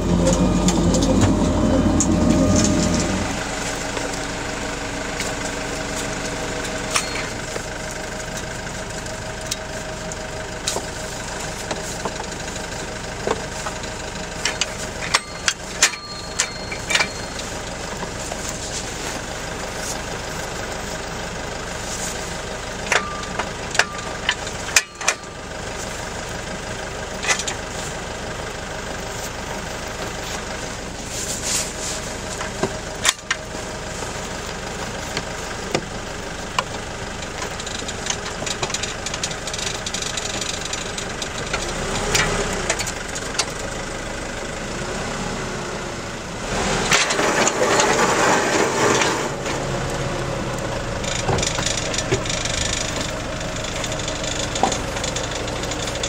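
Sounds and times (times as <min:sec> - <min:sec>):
chain conveyor rumble: 0:00.0 - 0:43.8, 0:46.8 - 0:56.0
diesel truck engine idling: 0:00.0 - 0:46.6, 0:47.2 - 0:56.0
metal clicks and clanks: 0:14.4 - 0:18.1, 0:51.0 - 0:56.0.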